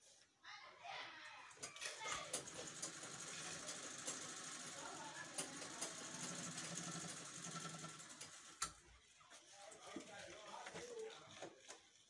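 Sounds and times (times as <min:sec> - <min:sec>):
sewing machine whirring: 0:01.5 - 0:08.9.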